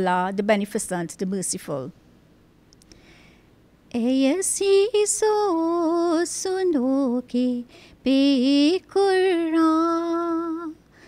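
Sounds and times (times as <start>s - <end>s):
woman singing unaccompanied: 3.9s - 10.9s.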